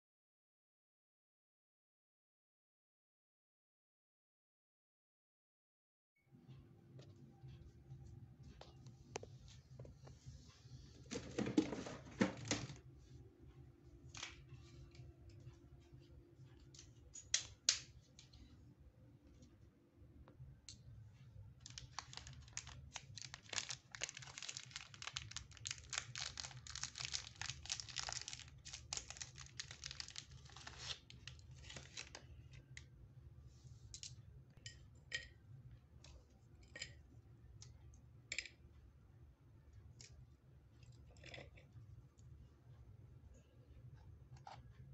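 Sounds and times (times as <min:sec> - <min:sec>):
plastic wrapper crinkling: 0:21.6 - 0:32.3.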